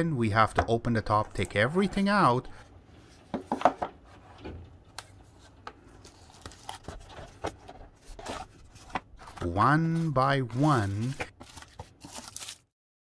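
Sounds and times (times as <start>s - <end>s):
cardboard and packaging rustling: 3.0s - 12.7s.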